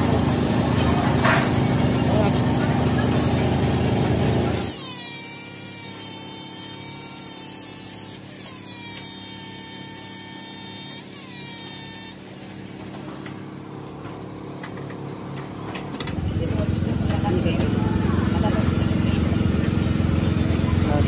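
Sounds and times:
angle grinder whining on steel: 0.0 - 13.1.

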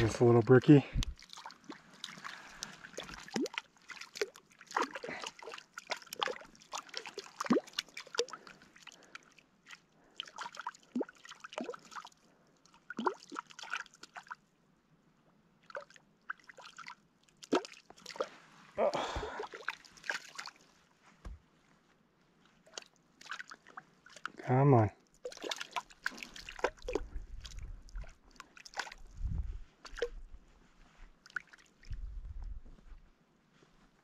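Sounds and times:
small waves lapping on boulders: 0.0 - 14.4, 15.6 - 20.9, 22.6 - 30.2.

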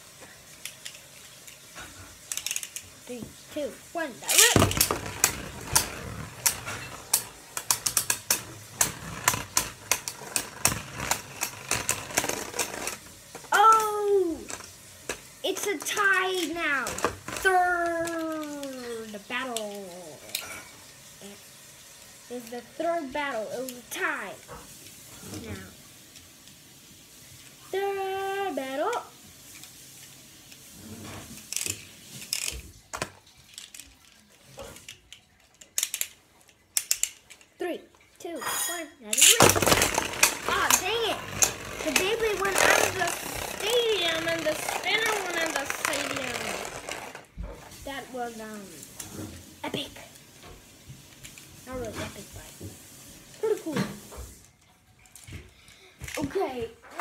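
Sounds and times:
spinning tops clacking: 0.7 - 20.3, 39.1 - 47.3
plastic ratcheting rasps: 2.2 - 3.0, 4.2 - 20.5, 31.3 - 37.6, 39.1 - 47.4.

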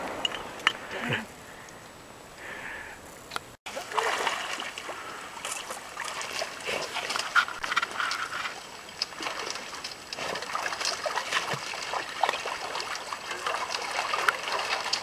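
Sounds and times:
water sloshing from wading: 3.7 - 15.0.

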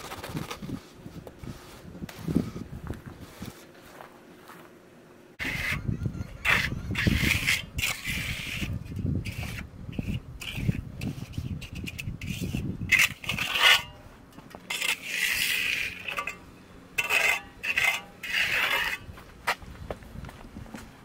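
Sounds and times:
trowel scraping wet concrete: 5.4 - 5.8, 6.4 - 14.0, 14.6 - 16.4, 17.0 - 19.1.

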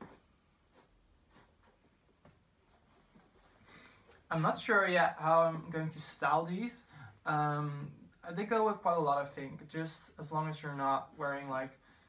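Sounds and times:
soft handling of sneakers: 0.0 - 4.6.

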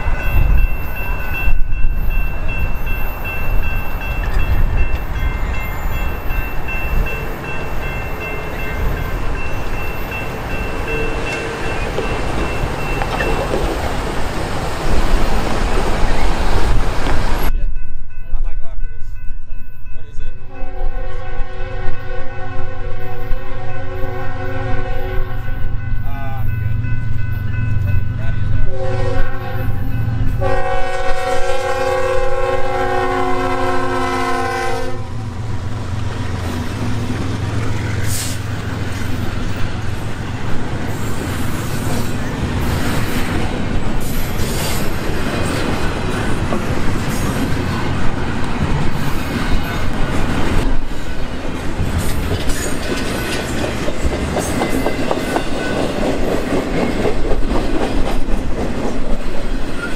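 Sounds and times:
train wheels clacking on rails: 0.0 - 17.6, 35.4 - 59.9
locomotive engines rumbling: 0.0 - 59.9
multi-note locomotive air horn: 20.5 - 25.7, 28.7 - 35.3.

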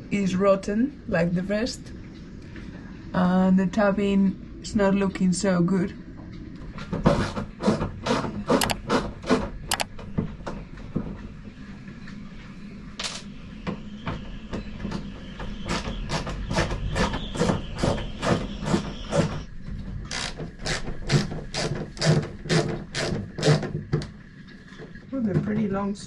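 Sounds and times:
screwdriver clicking on screws: 8.5 - 8.8.

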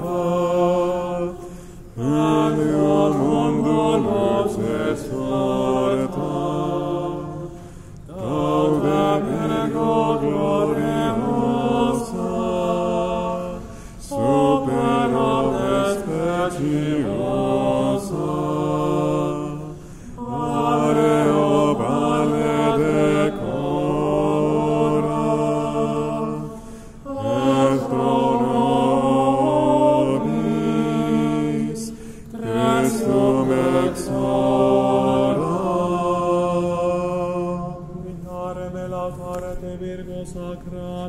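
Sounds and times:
singers breathing: 1.4 - 2.0, 7.5 - 8.1, 13.6 - 14.1, 19.7 - 20.3, 26.4 - 27.1, 31.9 - 32.4.

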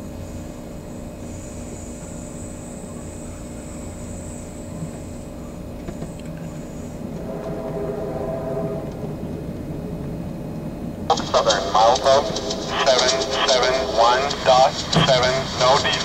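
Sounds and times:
train wheels rumbling on rail: 7.0 - 16.0.

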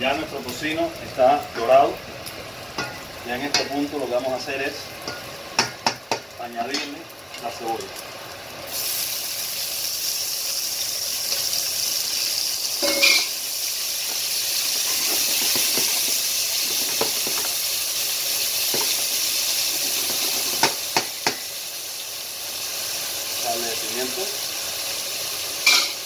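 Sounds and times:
onion sizzling in a pan: 0.0 - 26.0
pan clatter: 12.8 - 13.4, 14.8 - 17.6, 18.7 - 21.4, 25.6 - 26.0.

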